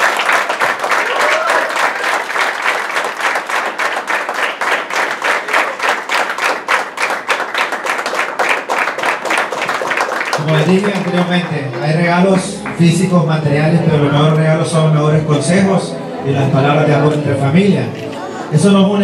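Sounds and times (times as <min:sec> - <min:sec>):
guests applauding: 0:00.0 - 0:14.4.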